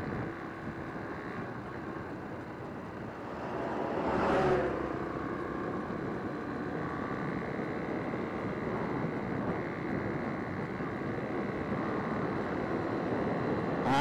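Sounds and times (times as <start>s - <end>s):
wind on microphone: 0.0s - 4.2s
motorcycle engine and road noise: 0.0s - 14.0s.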